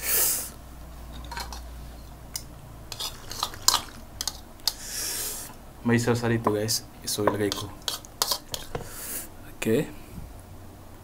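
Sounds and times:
cutlery scraping plates: 0:01.2 - 0:01.7, 0:02.9 - 0:04.8, 0:07.3 - 0:08.9.

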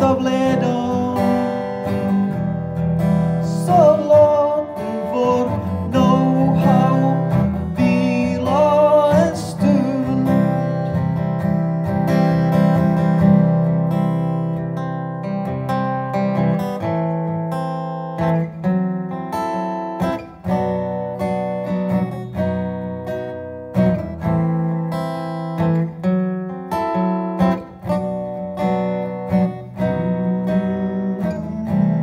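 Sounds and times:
acoustic guitar strumming: 0:00.0 - 0:32.0.

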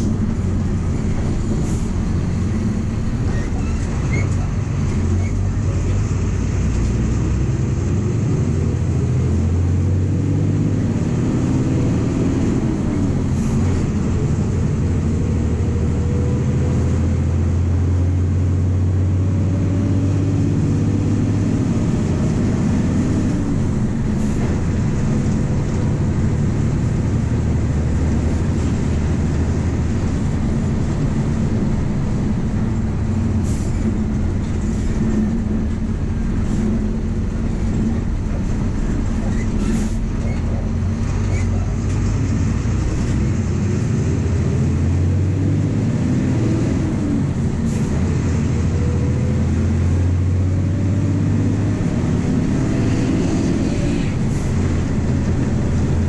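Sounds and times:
bus diesel engine drone: 0:00.0 - 0:56.0.

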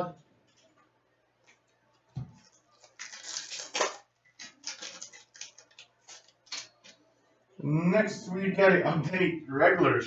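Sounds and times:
stack of cards rustling: 0:02.3 - 0:07.0.

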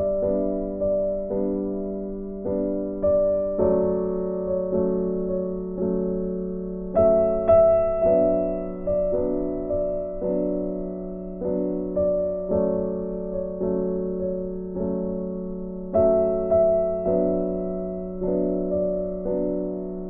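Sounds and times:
piano notes and chords: 0:00.0 - 0:20.0.

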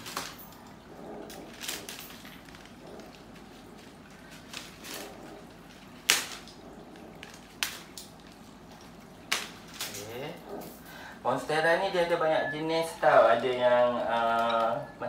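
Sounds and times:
plastic leaves rustling: 0:00.0 - 0:10.8.

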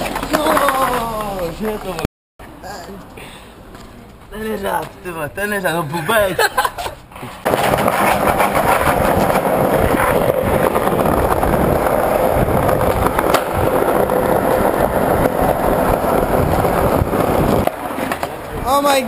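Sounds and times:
skateboard wheels rolling: 0:00.0 - 0:02.9, 0:06.8 - 0:19.0.

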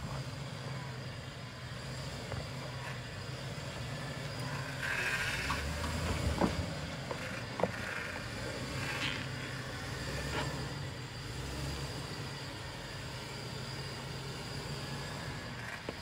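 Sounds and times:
low engine note: 0:00.0 - 0:16.0
creaking: 0:04.8 - 0:09.4.

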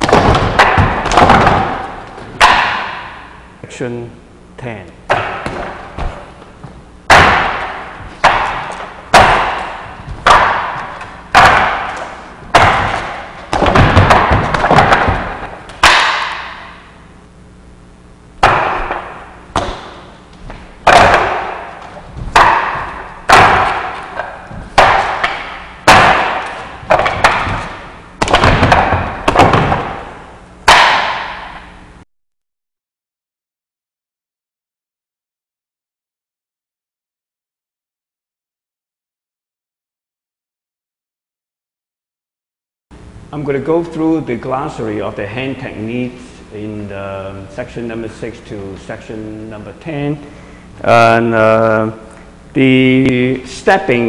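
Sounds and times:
sharp wooden knocks: 0:00.0 - 0:03.3, 0:05.1 - 0:06.3, 0:07.1 - 0:16.8, 0:18.4 - 0:31.6.

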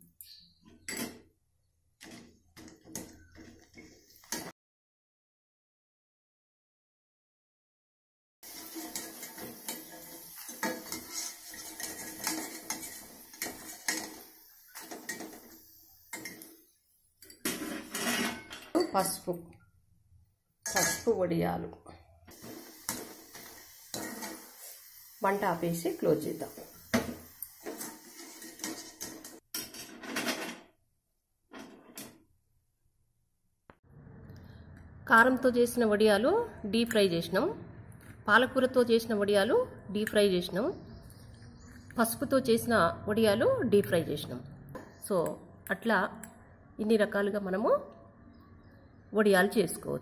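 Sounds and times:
oil sizzling: 0:02.0 - 0:04.5, 0:08.4 - 0:19.2, 0:22.3 - 0:29.4
wire skimmer scraping metal pan: 0:08.5 - 0:16.5, 0:17.2 - 0:18.7, 0:27.0 - 0:30.6
clatter on steel plate: 0:17.2 - 0:18.9, 0:27.0 - 0:30.6.

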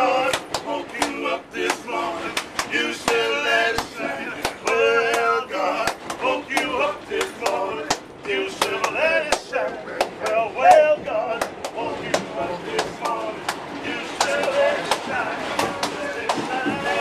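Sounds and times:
man singing: 0:06.4 - 0:17.0.

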